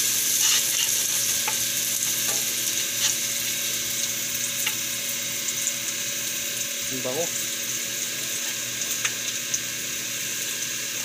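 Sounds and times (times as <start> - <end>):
garlic sizzling in hot fat: 0.0 - 11.0
wooden spatula scraping wok: 0.3 - 1.6.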